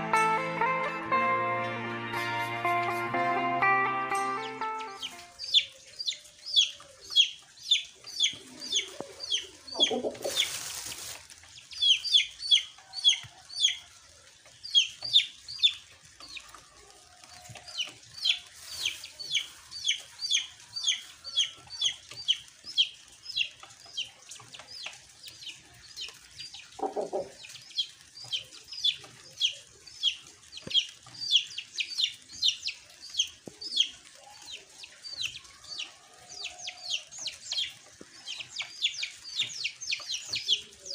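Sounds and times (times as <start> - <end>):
bird peeping: 4.4 - 13.8, 14.6 - 16.5, 17.7 - 40.9
scratchy rustle: 8.4 - 11.6, 17.4 - 20.1.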